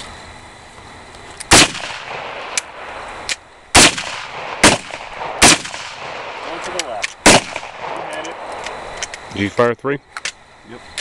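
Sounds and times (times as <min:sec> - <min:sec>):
faint gunshot cracks: 0:01.5 - 0:02.7, 0:03.8 - 0:08.3
gunshots: 0:01.5 - 0:03.0, 0:03.7 - 0:08.5.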